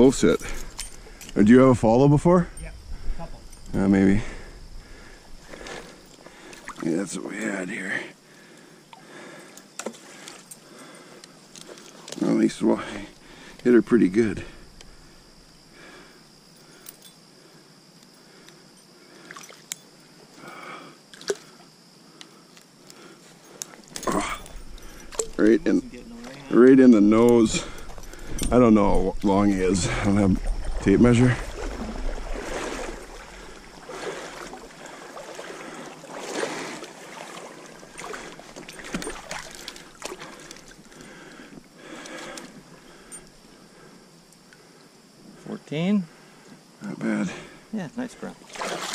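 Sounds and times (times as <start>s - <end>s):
water sloshing and trickling: 4.4s - 7.5s, 19.1s - 20.3s, 21.1s - 21.7s, 23.8s - 43.5s, 48.2s - 48.9s
stream water splashing: 30.3s - 40.9s, 48.4s - 48.9s.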